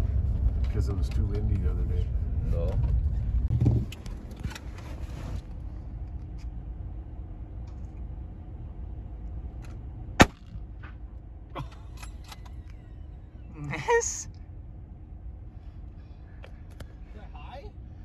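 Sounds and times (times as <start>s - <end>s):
low steady rumble: 0.0s - 18.0s
rifle shot: 10.2s - 10.6s.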